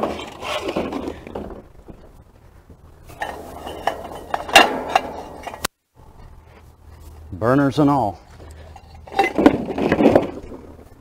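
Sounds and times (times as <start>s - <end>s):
metal grill parts clanking: 3.1s - 5.7s, 8.6s - 10.7s.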